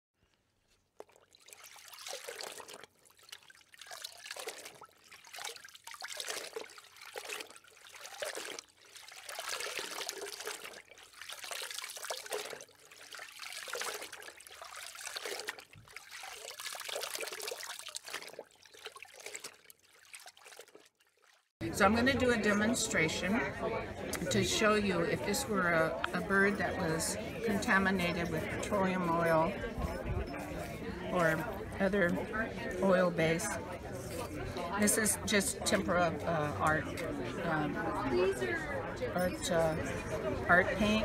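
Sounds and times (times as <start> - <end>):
water trickling and splashing: 0.2 - 23.4.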